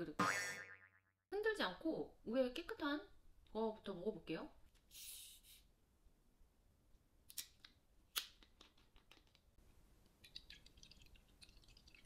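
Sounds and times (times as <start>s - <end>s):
liquid trickling into bowl: 10.2s - 12.0s.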